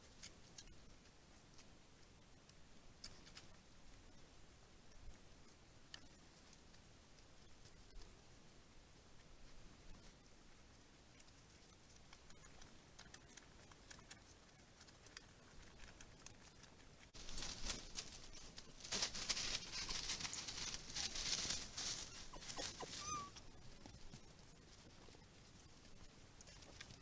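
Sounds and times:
foxes rustling in leaf litter: 0:17.2 - 0:25.7
high squeak: 0:22.1 - 0:23.4.

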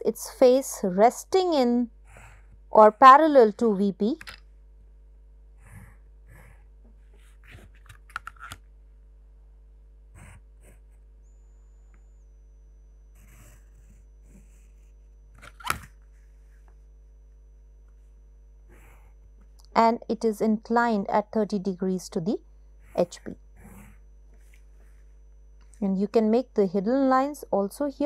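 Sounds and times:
low steady hum: 0:00.0 - 0:28.0
pencil scraping on paper: 0:13.1 - 0:15.1.

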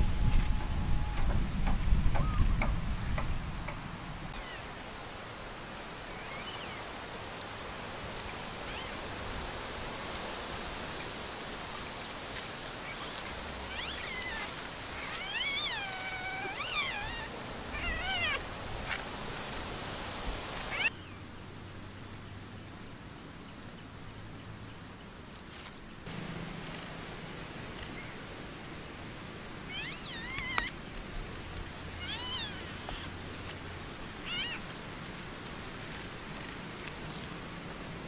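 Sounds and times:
steady hiss: 0:00.0 - 0:24.0, 0:24.8 - 0:38.0
animal calling: 0:13.7 - 0:18.4, 0:20.7 - 0:21.2, 0:29.7 - 0:30.7, 0:32.0 - 0:33.2, 0:34.2 - 0:34.6.

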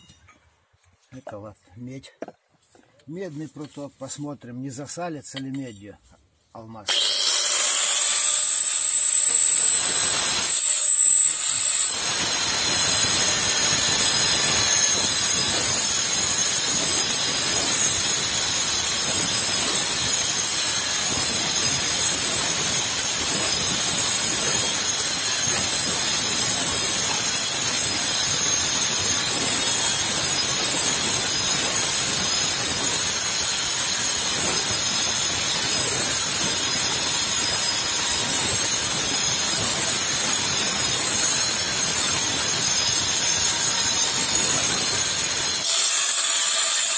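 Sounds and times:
angle grinder cutting metal: 0:06.9 - 0:46.9.

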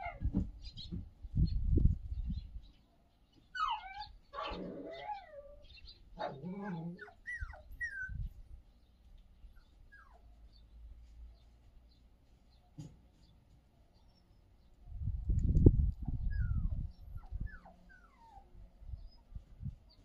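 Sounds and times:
puppy whimpering: 0:03.6 - 0:08.3, 0:16.1 - 0:18.5.

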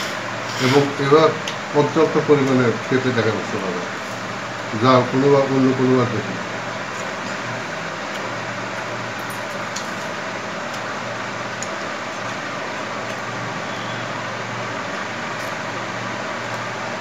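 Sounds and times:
mechanical whirring hum: 0:00.0 - 0:17.0.

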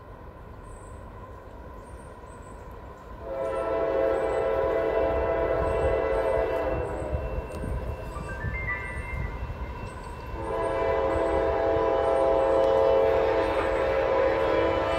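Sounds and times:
locomotive air horn blast: 0:03.2 - 0:07.2, 0:10.4 - 0:14.9.

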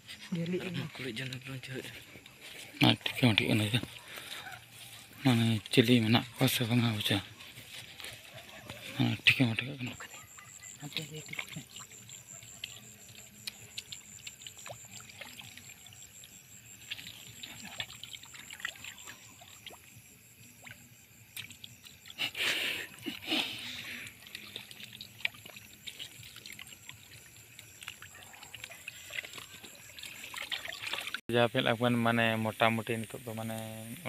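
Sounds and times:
stream trickling and splashing: 0:00.0 - 0:34.0.

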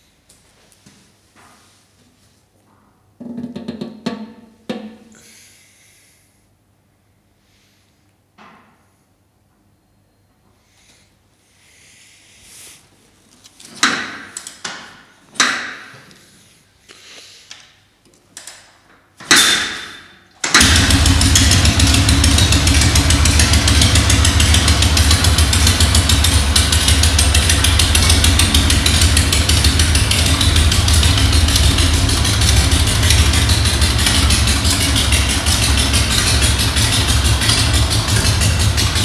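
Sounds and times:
motorcycle engine idling: 0:20.6 - 0:39.0.

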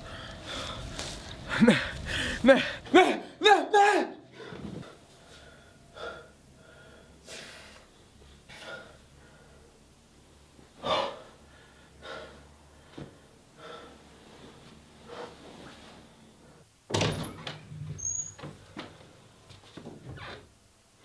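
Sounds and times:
man breathing heavily: 0:00.0 - 0:03.4, 0:04.3 - 0:10.0, 0:10.7 - 0:16.7
door banging open: 0:16.9 - 0:18.6
door squeak: 0:16.9 - 0:18.6, 0:20.1 - 0:20.4.

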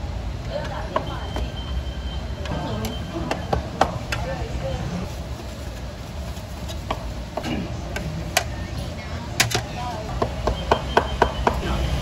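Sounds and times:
utensils knocking and clicking: 0:09.4 - 0:11.6.

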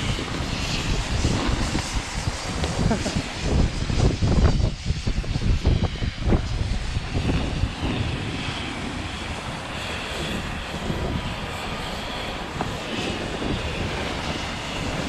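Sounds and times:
wind buffeting microphone: 0:00.0 - 0:15.0
snowboards scraping packed snow: 0:01.2 - 0:03.2.

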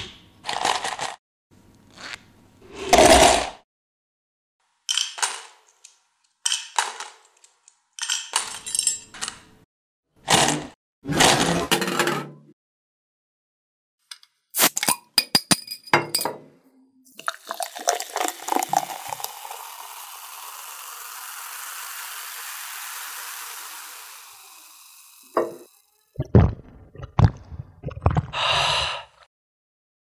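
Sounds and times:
soft drink poured into glass: 0:17.2 - 0:20.5
fizzing hiss of foam: 0:20.0 - 0:25.4
loud gulps: 0:26.2 - 0:28.8
person exhaling ahh: 0:28.2 - 0:29.3.

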